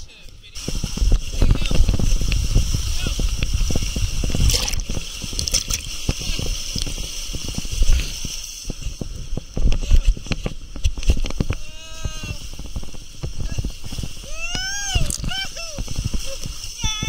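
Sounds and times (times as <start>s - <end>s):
water rushing and splashing: 0.6s - 17.0s
person crying out: 14.2s - 15.8s.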